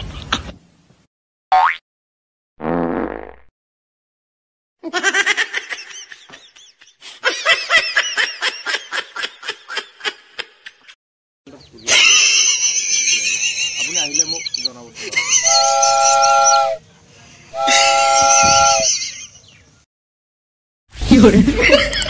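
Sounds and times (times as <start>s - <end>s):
rapid laughter: 4.8s - 11.0s, 21.1s - 22.0s
rising squeak: 15.5s - 16.8s, 17.6s - 19.0s.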